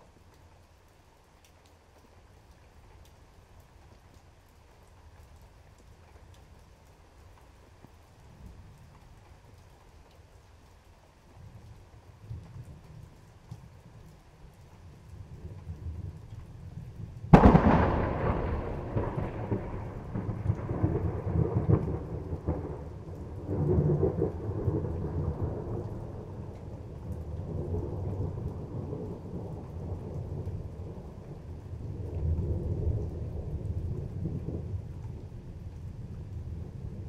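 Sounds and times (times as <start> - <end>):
steady rain: 0.0 - 37.0
thunder crack and rumble: 15.2 - 37.0.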